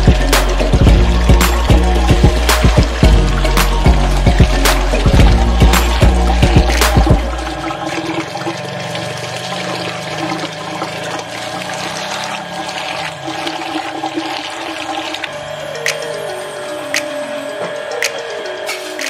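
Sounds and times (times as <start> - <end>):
background music: 0.0 - 19.0
hands swirling rice grains: 18.7 - 19.0.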